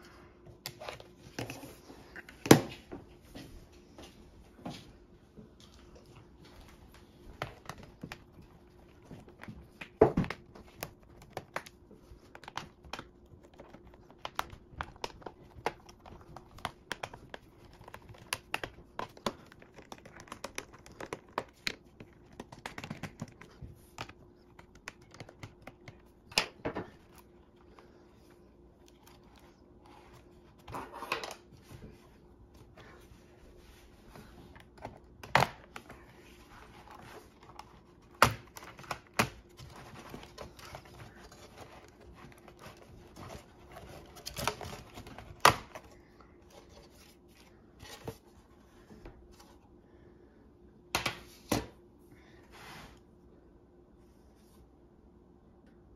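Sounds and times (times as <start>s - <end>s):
hands tapping plastic laptop: 9.0s - 26.7s.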